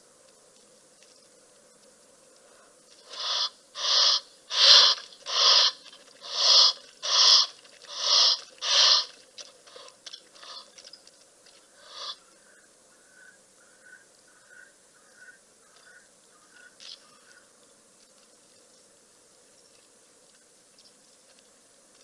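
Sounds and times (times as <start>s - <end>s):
animal hoarse calls: 3.0s - 10.9s, 11.8s - 12.3s.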